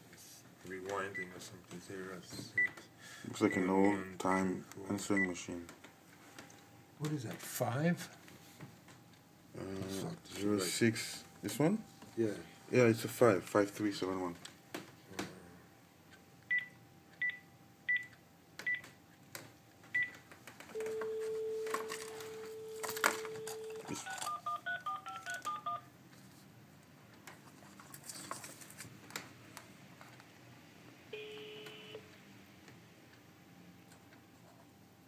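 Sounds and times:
steady telephone tone: 20.7s - 25.9s, 31.1s - 32.0s
touch-tone dialing beeps: 20.8s - 25.9s.

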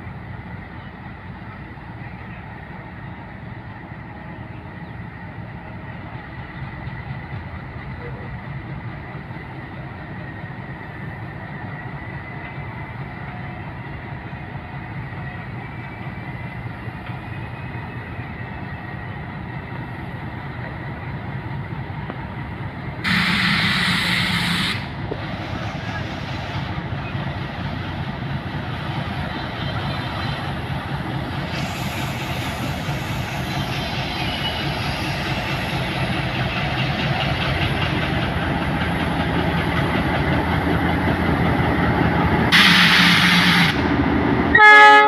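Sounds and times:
diesel locomotive engine rumbling: 0.0s - 45.0s
loud locomotive horn blast: 23.0s - 24.9s, 42.5s - 43.9s, 44.5s - 45.0s.

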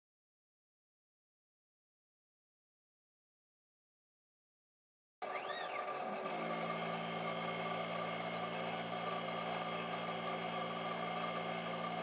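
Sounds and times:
milling machine cutting metal: 5.2s - 12.0s.

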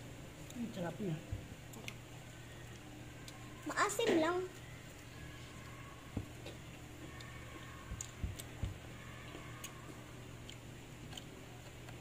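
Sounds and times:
soft low thumps: 7.9s - 8.8s
person chewing wet mouth sounds: 9.3s - 12.0s.

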